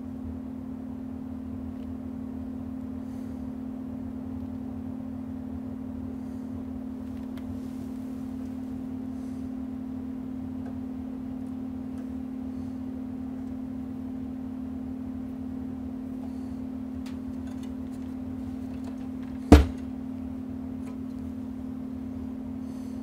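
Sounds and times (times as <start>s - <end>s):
steady low hum: 0.0s - 23.0s
loud sharp knock: 19.5s - 19.8s.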